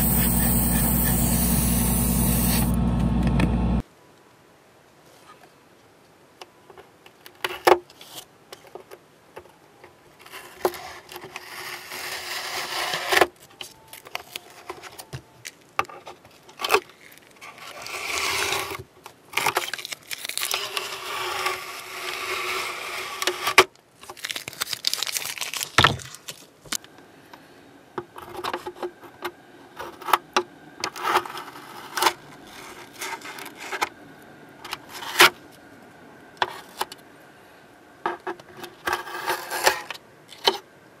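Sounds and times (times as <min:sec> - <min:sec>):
masking tape peeling: 0:00.0 - 0:02.8, 0:24.0 - 0:26.5.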